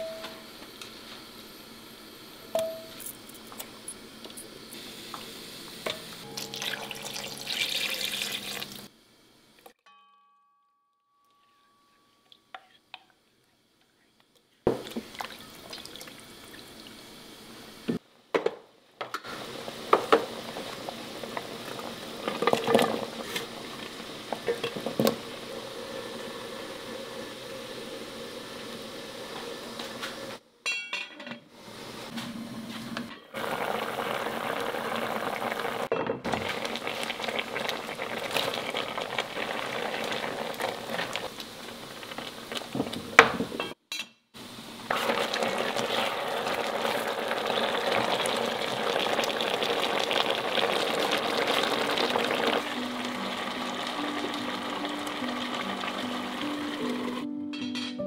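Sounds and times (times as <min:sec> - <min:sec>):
stew bubbling: 0:19.4 - 0:29.3, 0:33.4 - 0:43.1, 0:44.9 - 0:57.2.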